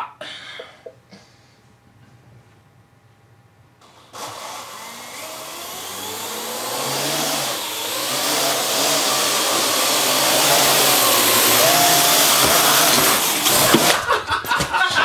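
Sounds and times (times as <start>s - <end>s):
drone rotors whirring: 3.8s - 14.0s.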